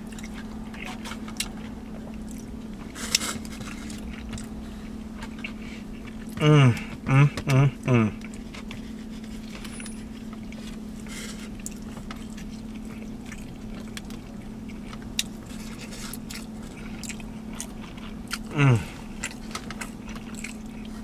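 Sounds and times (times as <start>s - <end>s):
close-up chewing: 0.0s - 7.6s, 8.2s - 21.0s
low hum in car cabin: 0.0s - 21.0s
man humming mmm: 6.3s - 8.3s, 18.5s - 19.0s.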